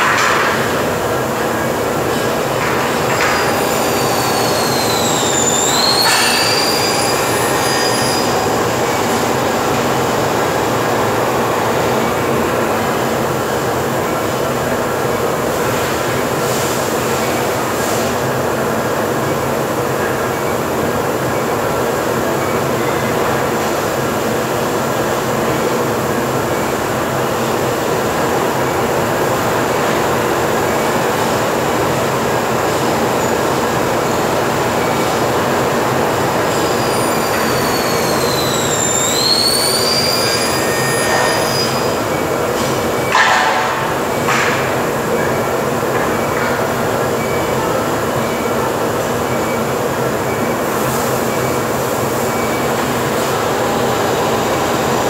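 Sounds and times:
cutting saw and factory machinery: 0.0s - 14.1s, 33.7s - 46.5s
high metallic squeal: 3.1s - 9.2s, 36.5s - 42.0s.

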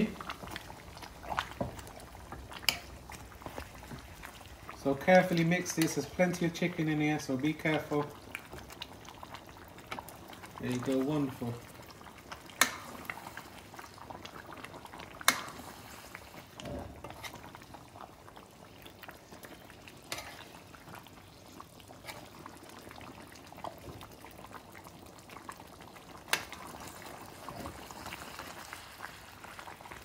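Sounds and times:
curry bubbling: 0.0s - 30.0s.

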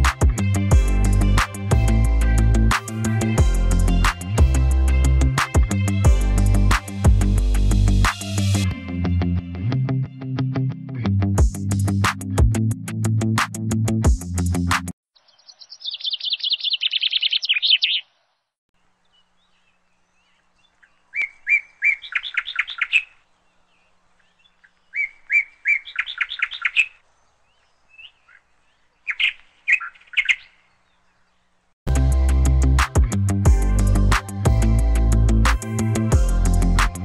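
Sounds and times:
small bird singing: 15.2s - 31.7s.

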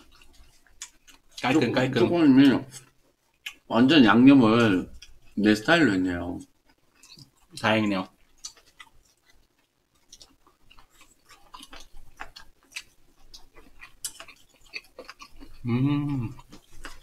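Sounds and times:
people chewing food: 0.0s - 17.0s.

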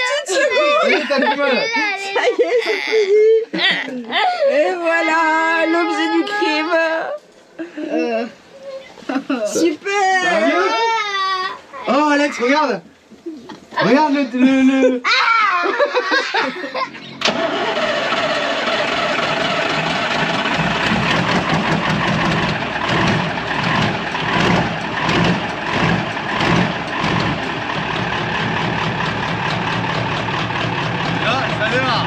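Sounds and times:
diesel truck engine running: 17.1s - 32.0s.

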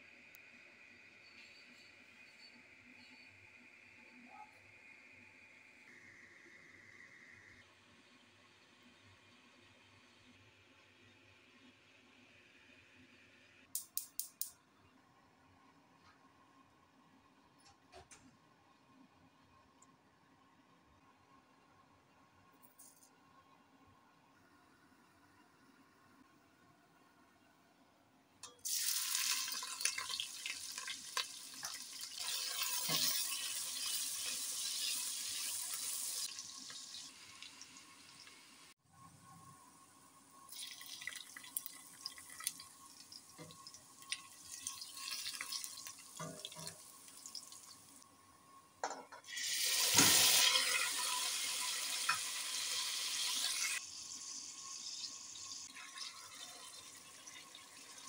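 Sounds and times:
vegetables sizzling in hot oil: 28.6s - 38.7s, 40.3s - 48.0s, 49.3s - 58.0s.

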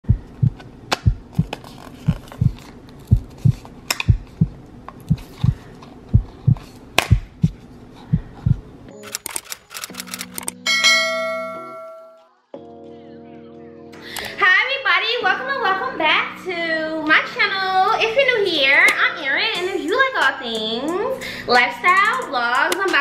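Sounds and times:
steady low tone: 0.0s - 1.5s
heartbeat thumps: 0.0s - 8.7s
camera shutter clicks: 8.9s - 10.6s
bright bell ding: 10.7s - 12.2s.

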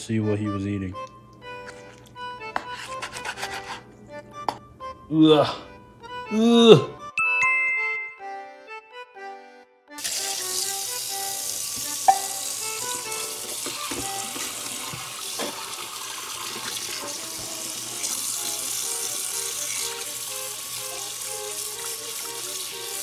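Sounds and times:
tap water splashing into sink: 11.7s - 20.0s.

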